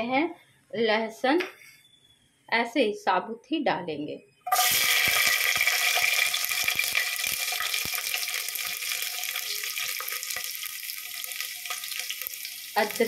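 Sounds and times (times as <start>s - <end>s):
garlic sizzling in hot oil: 4.5s - 13.0s.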